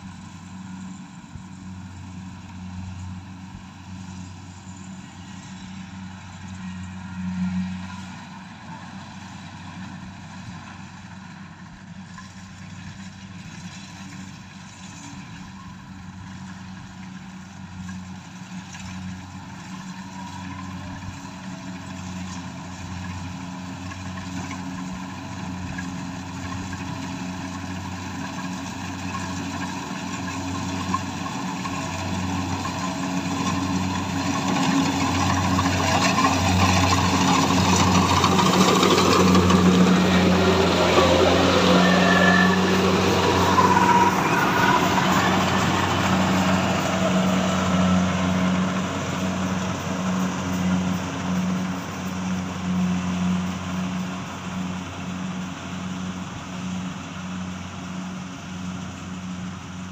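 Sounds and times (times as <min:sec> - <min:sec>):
combine harvester engine: 0:00.0 - 0:59.9.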